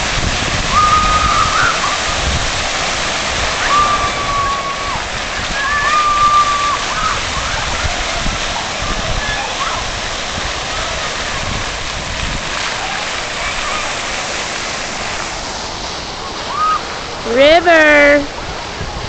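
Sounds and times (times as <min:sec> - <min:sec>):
fountain water spraying and falling: 0:00.0 - 0:19.0
long high calls: 0:00.7 - 0:02.1, 0:03.6 - 0:07.2.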